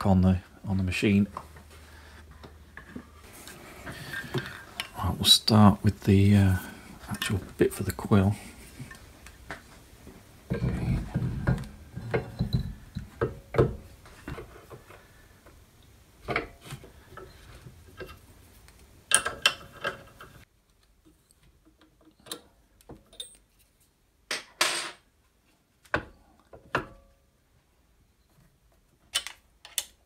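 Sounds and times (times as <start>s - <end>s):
metal parts clinking and knocking: 23.0s - 23.5s.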